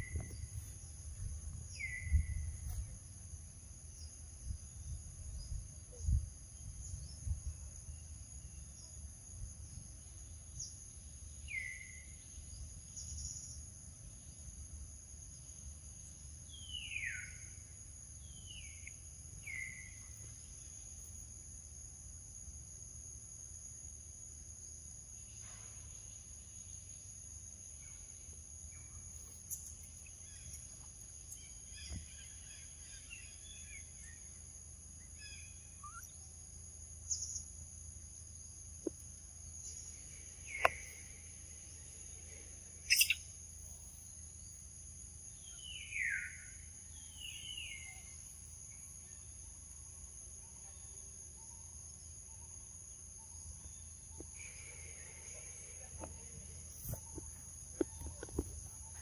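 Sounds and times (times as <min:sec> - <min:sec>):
insect chorus drone: 0:00.0 - 0:59.0
bird chirps: 0:35.0 - 0:36.3, 0:42.8 - 0:43.3
falling bird calls: 0:42.9 - 0:43.2.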